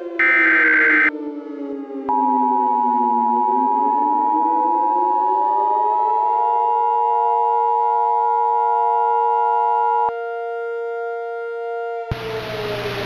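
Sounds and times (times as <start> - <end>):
siren-like gliding tones: 0.0 - 13.0
two-note alarm tone: 0.2 - 1.1, 2.1 - 10.2.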